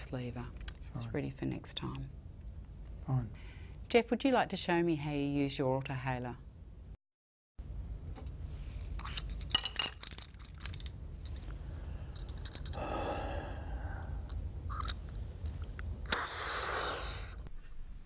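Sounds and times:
inhaler rattling and clicking: 0:08.8 - 0:12.9
breath out: 0:11.7 - 0:14.3, 0:16.1 - 0:17.5
deep breath in: 0:11.7 - 0:14.3
sharp inhaler click: 0:16.0 - 0:16.9.

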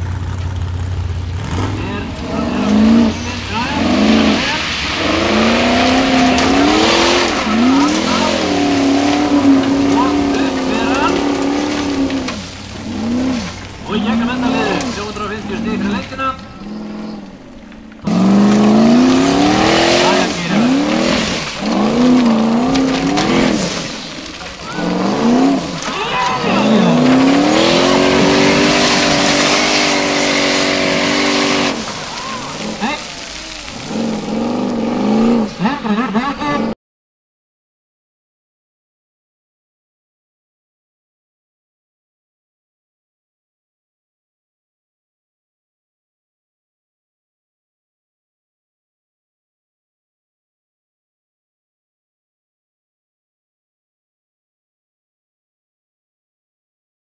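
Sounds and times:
tyres spinning on gravel: 0:00.0 - 0:36.7
buggy engine revving hard: 0:00.0 - 0:36.8.

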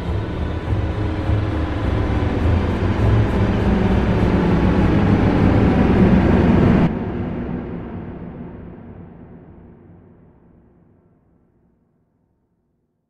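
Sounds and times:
deep rumbling swell: 0:00.0 - 0:09.6.

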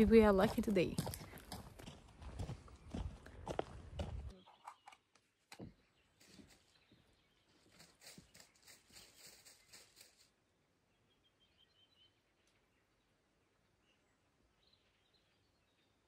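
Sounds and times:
footsteps on gravel: 0:00.0 - 0:04.4.

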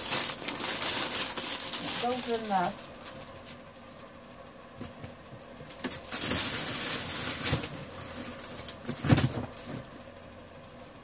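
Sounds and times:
newspaper rustling: 0:00.0 - 0:03.7, 0:05.7 - 0:09.9.

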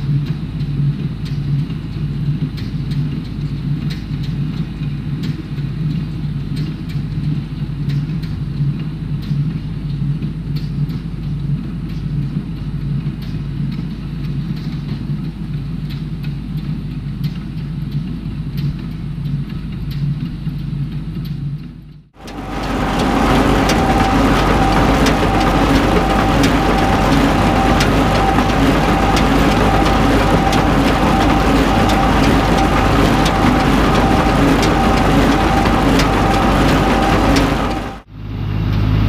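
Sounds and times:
tractor engine droning: 0:22.2 - 0:39.0.

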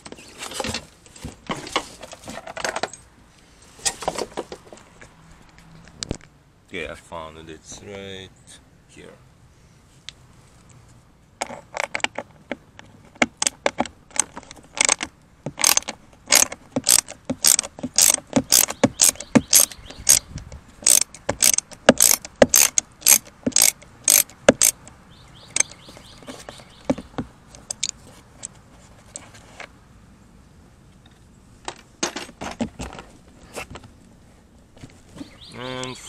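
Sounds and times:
hand ratchet clicking: 0:14.1 - 0:20.2, 0:20.8 - 0:24.9.

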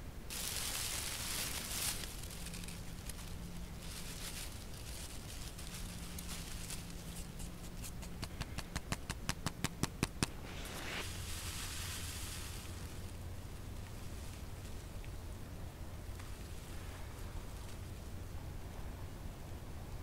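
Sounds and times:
dry grass crackling: 0:00.0 - 0:18.2
breath blowing into tinder: 0:10.1 - 0:13.0.

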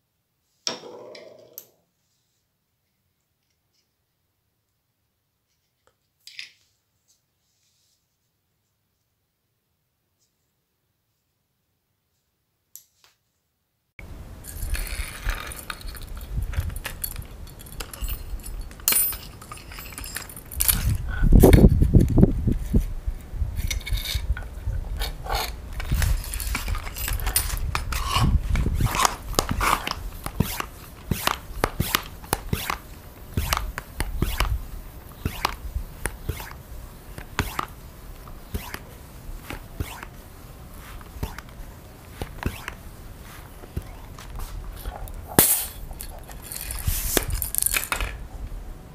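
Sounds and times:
metal parts clicking and scraping: 0:14.4 - 0:22.0, 0:23.6 - 0:40.2, 0:42.2 - 0:48.2.

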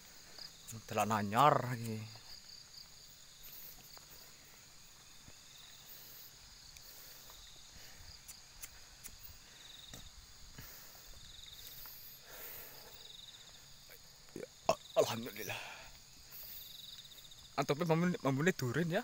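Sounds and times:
crickets and insects chirping: 0:00.0 - 0:19.0
footsteps on dirt track: 0:02.0 - 0:12.1.

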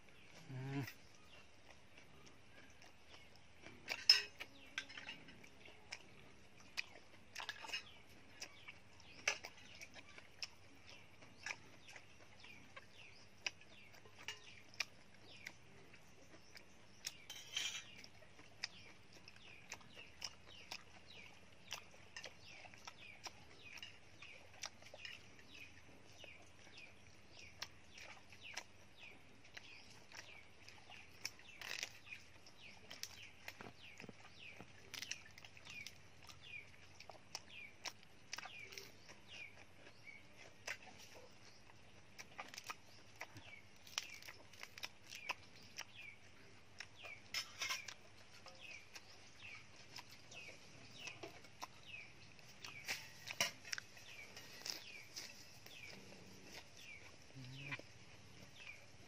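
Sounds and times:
birds chirping faintly: 0:00.0 - 0:59.0
chewing: 0:00.0 - 0:59.0
cabbage leaves crunching: 0:52.5 - 0:57.2.

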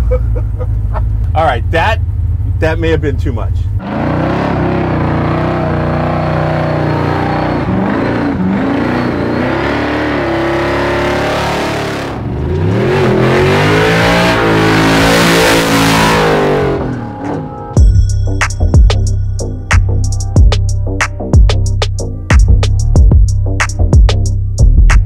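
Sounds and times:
truck engine revving: 0:03.6 - 0:17.8.

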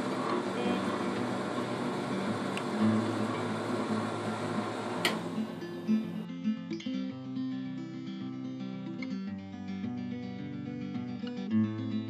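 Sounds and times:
wood lathe motor running: 0:00.0 - 0:06.2.

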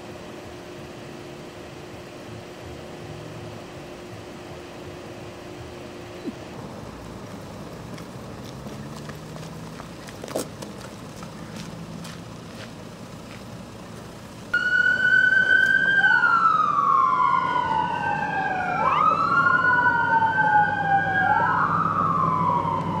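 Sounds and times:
ambulance siren wailing: 0:14.5 - 0:23.0.

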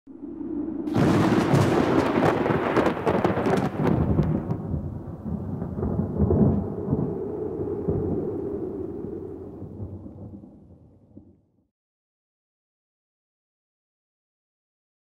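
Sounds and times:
thunder clap and rumble: 0:00.1 - 0:11.5.

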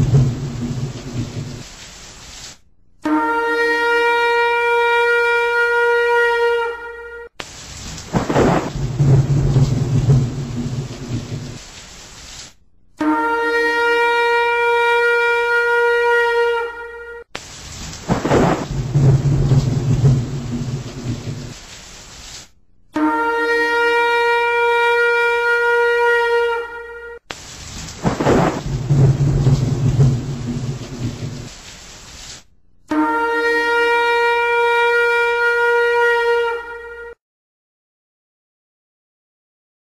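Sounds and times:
thunder rumbling: 0:00.0 - 0:02.4, 0:07.6 - 0:12.4, 0:17.5 - 0:22.4, 0:27.4 - 0:32.3
rain: 0:00.0 - 0:02.7, 0:07.4 - 0:12.6, 0:17.3 - 0:22.6, 0:27.2 - 0:32.5
long horn blast: 0:03.0 - 0:07.4, 0:13.0 - 0:17.3, 0:22.9 - 0:27.3, 0:32.9 - 0:37.2.

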